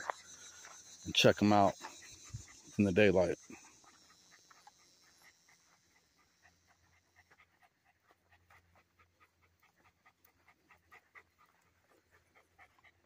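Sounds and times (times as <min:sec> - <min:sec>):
dog panting faintly: 0:00.0 - 0:13.0.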